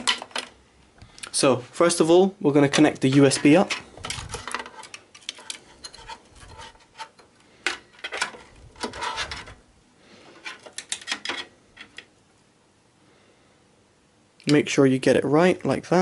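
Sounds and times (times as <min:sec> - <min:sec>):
cables rubbing and scraping: 0:02.7 - 0:07.3, 0:07.9 - 0:12.1.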